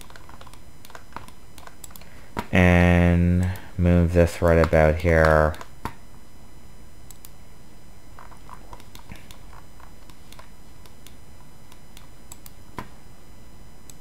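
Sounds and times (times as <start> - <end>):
computer mouse clicks: 0.0 - 2.5, 7.1 - 7.4, 8.2 - 12.9.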